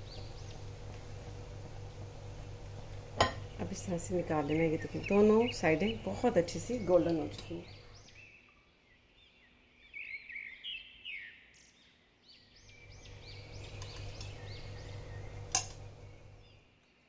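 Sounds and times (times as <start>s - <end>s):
small birds chirping: 0.0s - 0.8s, 3.4s - 17.0s.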